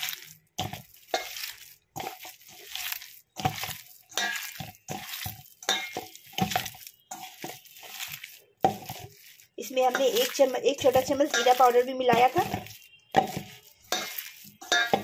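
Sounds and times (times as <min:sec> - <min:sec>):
wet squishing of kneaded meat: 0:00.0 - 0:15.0.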